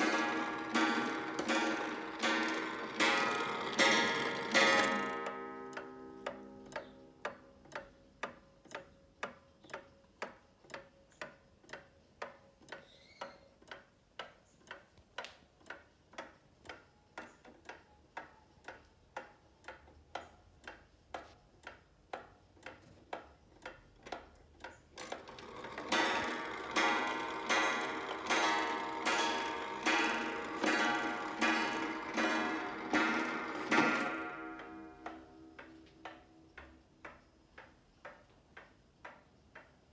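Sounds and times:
wall clock ticking: 0.0s - 39.9s
clock gong striking: 25.9s - 35.0s.

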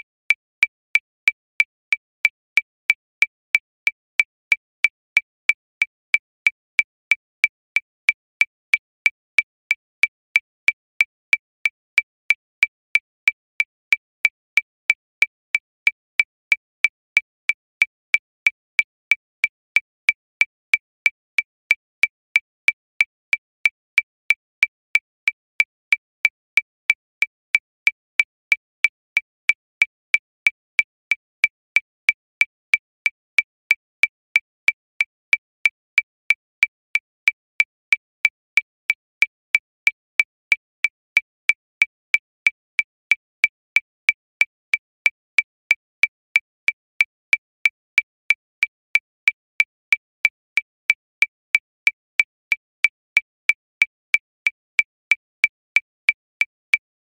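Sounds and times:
electronic metronome clicking: 0.3s - 21.8s.

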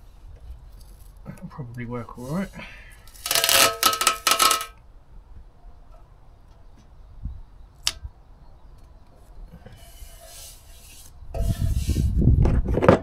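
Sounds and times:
palm rubbing tape: 2.2s - 4.7s, 9.7s - 12.2s.

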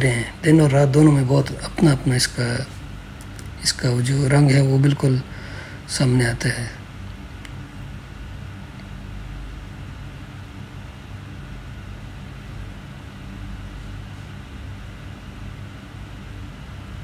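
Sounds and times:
low rumbling hum: 0.0s - 17.0s.

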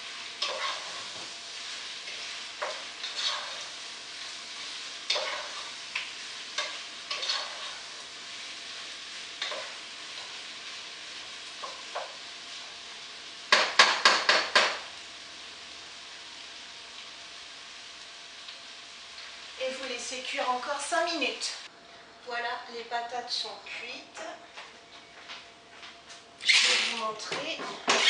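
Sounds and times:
potatoes sizzling in fat: 0.0s - 24.4s, 26.3s - 28.0s
utensil scraping a pot: 0.4s - 1.2s, 2.0s - 3.8s, 6.6s - 7.9s, 26.4s - 27.1s.

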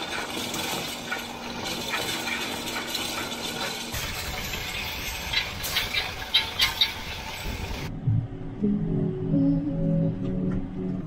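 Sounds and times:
low rumble: 7.5s - 11.0s.

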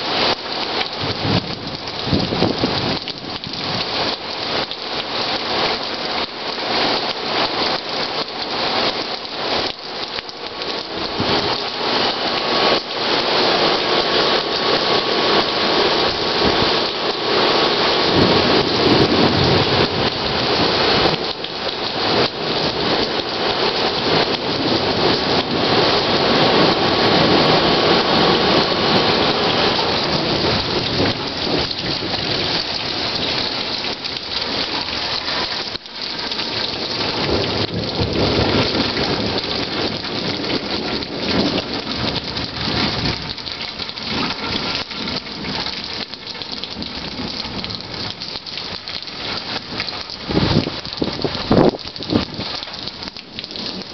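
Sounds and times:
rain falling: 0.0s - 53.9s
thunder rolling: 18.1s - 21.2s, 24.0s - 34.0s, 36.5s - 45.7s.

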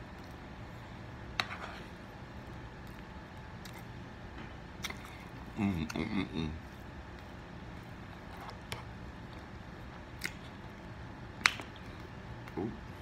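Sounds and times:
person chewing: 4.8s - 12.7s.

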